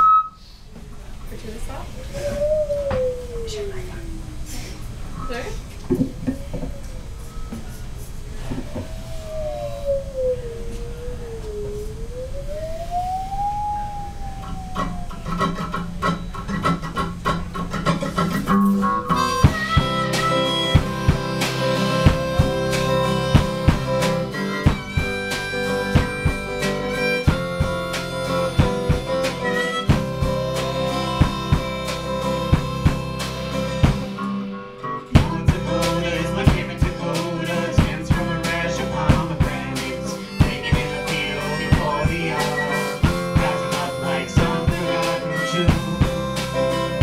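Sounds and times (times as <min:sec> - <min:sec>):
drums: 0:00.0 - 0:10.3, 0:12.6 - 0:47.0
gliding note: 0:08.3 - 0:16.3
strummed guitar: 0:14.8 - 0:47.0
harmonica holding chords: 0:15.3 - 0:47.0.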